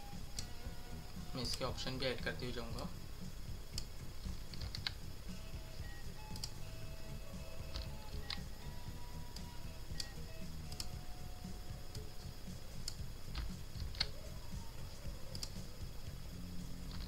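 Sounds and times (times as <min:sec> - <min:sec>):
steady low hum: 0:00.0 - 0:17.0
mouse clicks: 0:06.3 - 0:06.6, 0:15.3 - 0:15.7.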